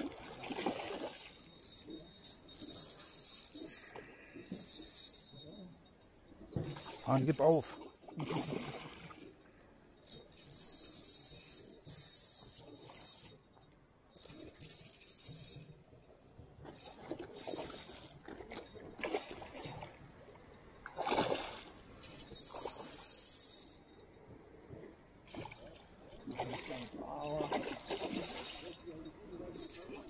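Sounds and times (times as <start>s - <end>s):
fishing reel ratcheting: 0.6s - 5.6s, 6.7s - 9.2s, 10.0s - 15.8s, 16.7s - 18.2s, 22.3s - 24.0s, 26.3s - 30.0s.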